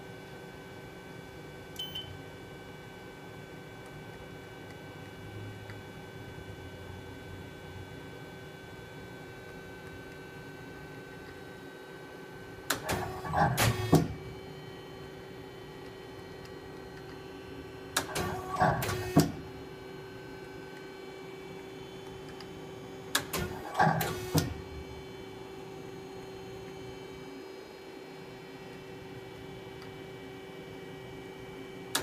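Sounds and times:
machine clunks and whirring: 12.6 - 14.4, 17.9 - 19.6, 23.1 - 25.2.

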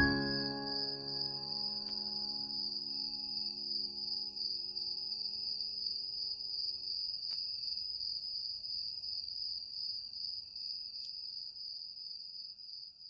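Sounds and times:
soft music: 0.0 - 5.8.

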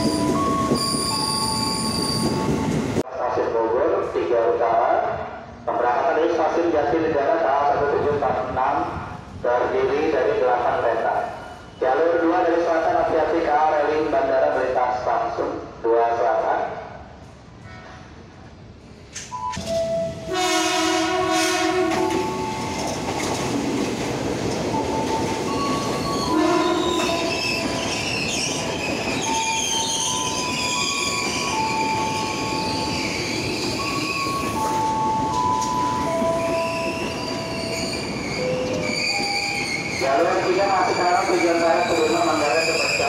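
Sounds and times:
train wheels squealing: 0.0 - 2.7, 25.0 - 43.0
train rolling rumble: 0.0 - 3.1, 17.1 - 43.0
train horn: 17.6 - 18.1, 20.3 - 22.2, 26.3 - 27.4.

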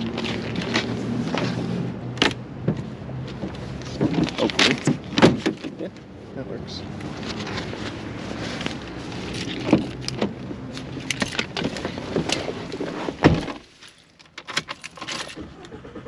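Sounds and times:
clattering clicks and knocks: 0.0 - 1.6, 2.2 - 6.1, 8.6 - 15.8
vehicle hum: 0.0 - 16.0.

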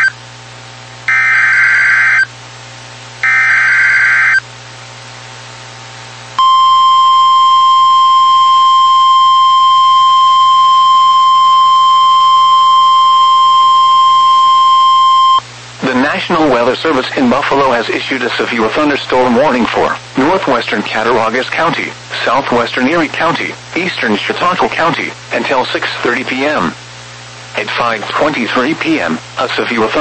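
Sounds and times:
steady warning alarm tone: 1.1 - 2.3, 3.2 - 4.4, 6.4 - 15.4.

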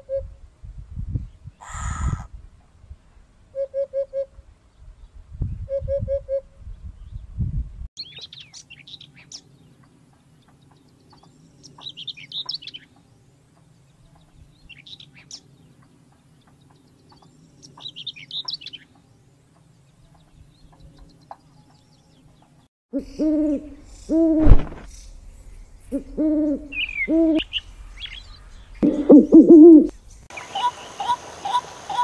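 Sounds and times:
bird warbling song: 8.0 - 24.1, 25.2 - 32.0.

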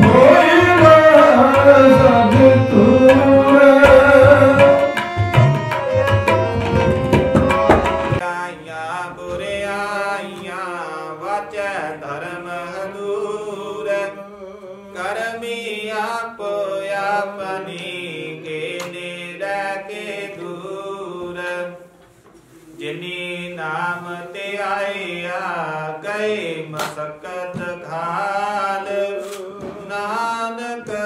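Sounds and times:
man chanting: 0.0 - 5.1
tabla drumming: 0.0 - 8.2
harmonium: 0.0 - 21.5.

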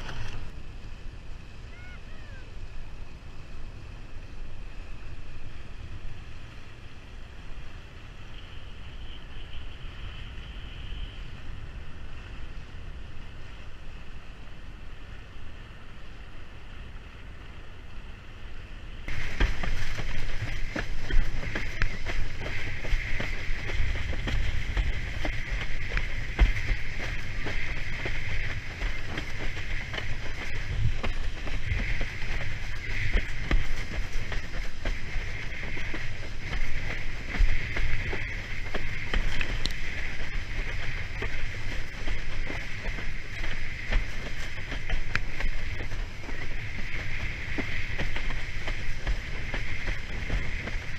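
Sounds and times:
wind buffeting microphone: 0.0 - 50.9
water rushing past board: 19.1 - 50.9.

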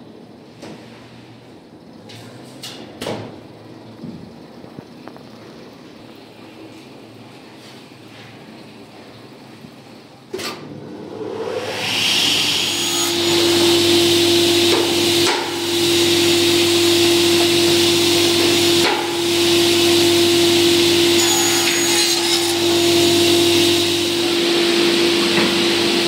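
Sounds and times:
panel saw whining: 11.0 - 26.0.

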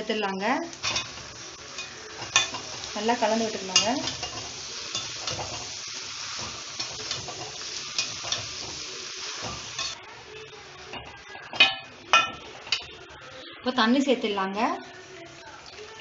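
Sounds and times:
frying sizzle: 0.0 - 16.0
spatula scraping food in a pan: 0.8 - 10.1
spatula clanking against metal pan: 1.8 - 2.8, 3.7 - 5.7, 6.4 - 8.8, 10.9 - 12.9.

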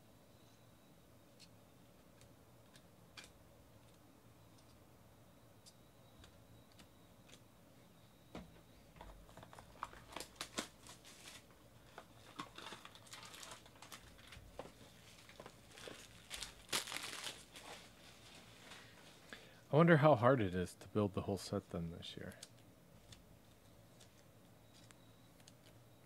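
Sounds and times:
plastic and foil crinkling: 9.3 - 19.2.

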